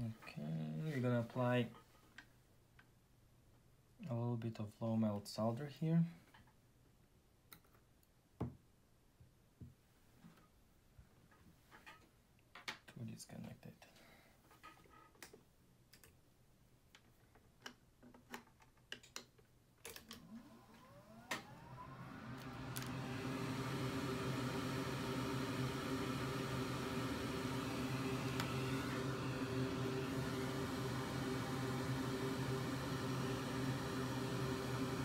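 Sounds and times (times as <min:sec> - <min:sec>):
electric fan motor whirring: 0:20.2 - 0:35.0.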